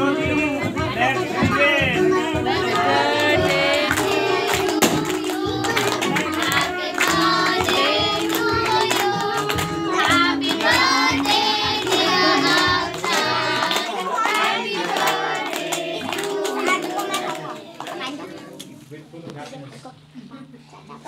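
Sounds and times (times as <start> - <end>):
music: 0.0 - 17.4
children singing a birthday song: 0.0 - 18.6
people clapping: 2.1 - 18.4.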